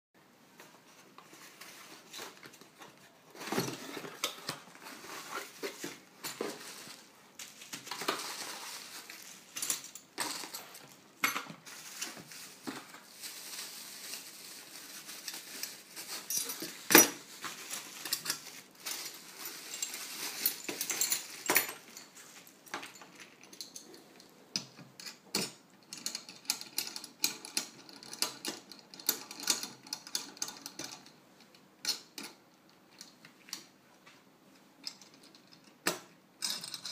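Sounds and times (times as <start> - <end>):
cardboard and plastic rustling: 0.6 - 23.4
metal parts clicking and clinking: 5.3 - 11.5, 15.2 - 32.4, 34.8 - 36.9.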